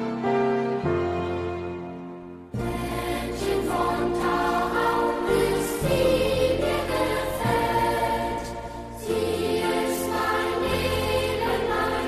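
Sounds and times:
piano accompaniment: 0:00.0 - 0:12.0
boys' choir singing: 0:02.6 - 0:12.0.

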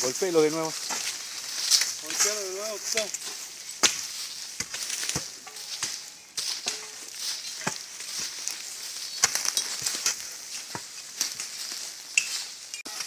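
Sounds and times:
undergrowth fire crackling: 0:00.0 - 0:13.0
hand tool beating brush: 0:01.9 - 0:11.5.

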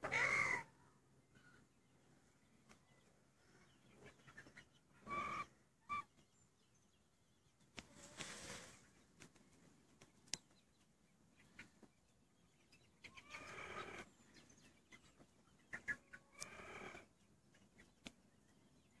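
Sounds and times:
chickens calling: 0:00.0 - 0:19.0
faint clicks: 0:18.0 - 0:18.2.

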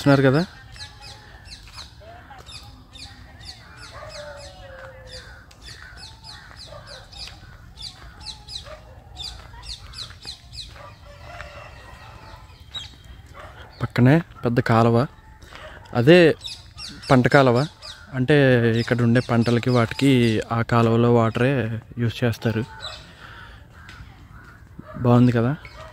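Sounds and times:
lower wavering bird calls: 0:00.0 - 0:20.6
birds chirping: 0:00.0 - 0:25.9.

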